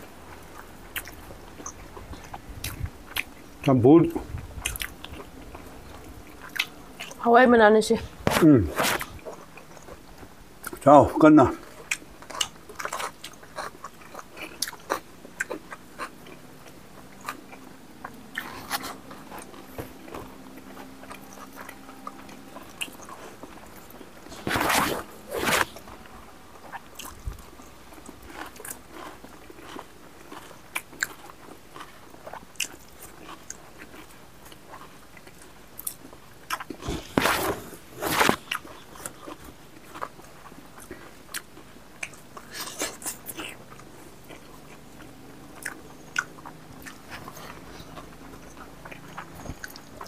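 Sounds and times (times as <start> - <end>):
people chewing and smacking: 0.0 - 7.3, 8.2 - 50.0
small crunches: 22.6 - 26.0.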